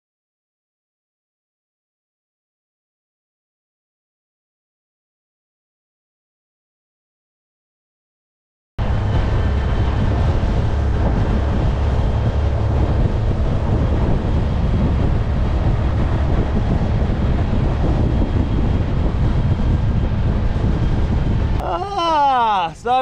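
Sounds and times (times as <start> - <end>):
outboard motor boat rumble: 8.8 - 23.0
wind on microphone: 8.8 - 23.0.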